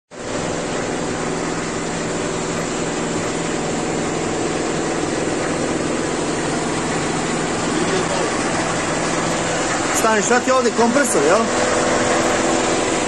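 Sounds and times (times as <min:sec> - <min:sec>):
compressor motor humming: 0:00.1 - 0:13.0.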